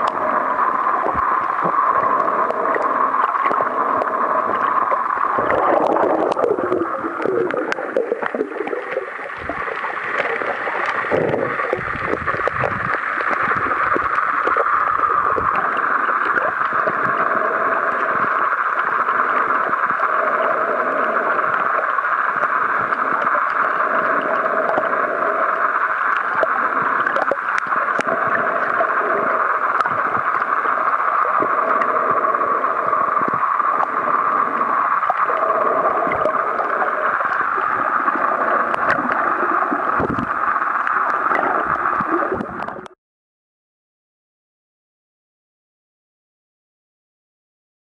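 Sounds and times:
faint hum: 0.0 - 43.0
muffled underwater rushing: 0.0 - 43.0.

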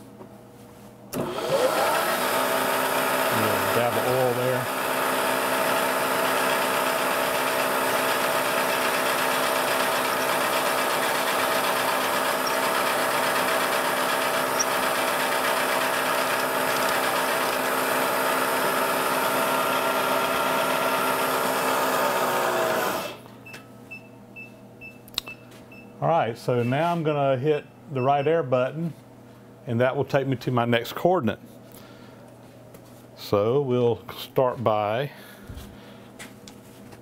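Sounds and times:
milling machine drilling metal: 1.2 - 23.2.

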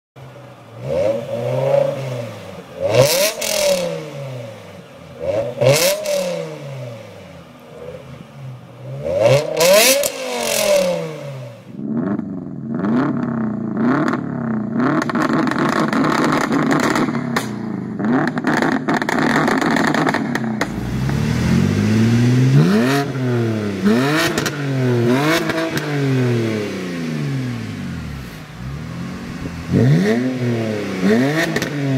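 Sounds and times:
car engine revving: 0.2 - 31.9
turbo engine revving with crackle and pops: 0.2 - 31.9
straight-six engine revving: 8.8 - 11.7, 20.6 - 31.9.

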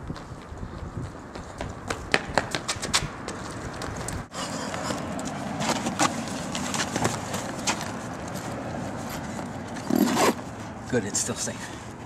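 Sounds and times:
sneakers running on asphalt: 0.0 - 4.3
backpack rustling: 5.6 - 10.4.

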